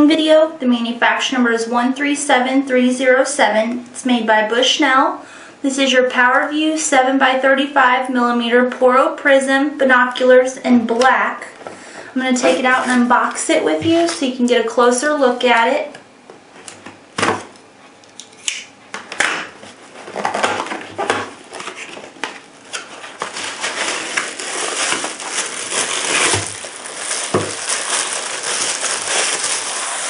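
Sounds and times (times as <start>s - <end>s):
cardboard flaps tapping and scraping: 19.1s - 24.3s
plastic bag crinkling: 20.0s - 30.0s.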